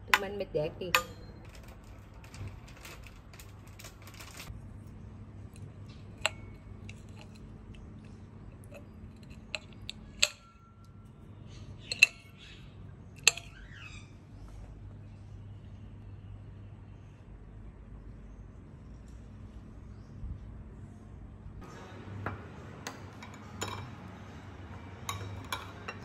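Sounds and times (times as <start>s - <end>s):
cutlery clinking on plate: 22.9s - 26.0s.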